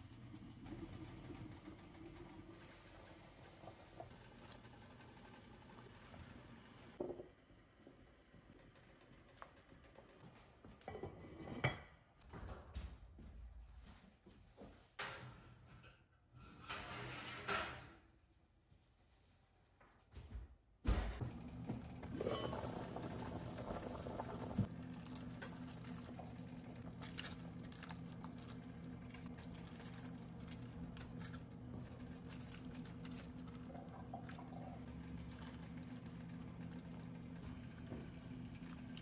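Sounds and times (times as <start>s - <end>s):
soup bubbling in a pot: 22.0s - 26.9s.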